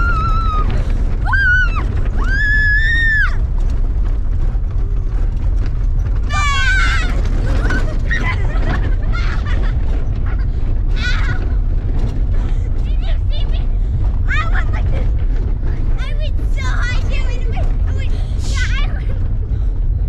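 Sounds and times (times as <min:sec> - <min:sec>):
boys shrieking: 0:00.0 - 0:03.4
low rumble of moving truck: 0:00.0 - 0:20.0.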